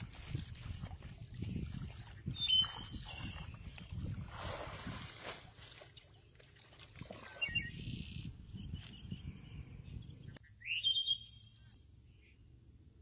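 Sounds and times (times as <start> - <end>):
birds chirping: 1.0 - 4.0, 7.2 - 12.6
high repeated bird calls: 2.3 - 3.7, 7.2 - 12.4.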